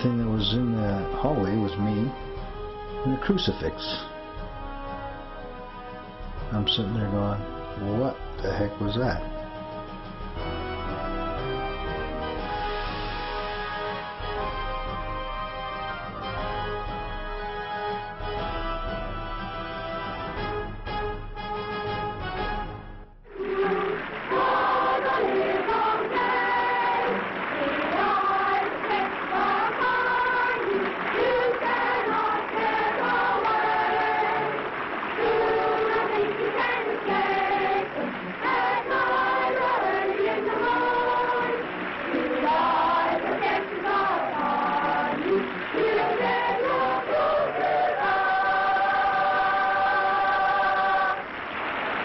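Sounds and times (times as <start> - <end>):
music: 0.0 - 52.0
choir singing: 23.3 - 51.2.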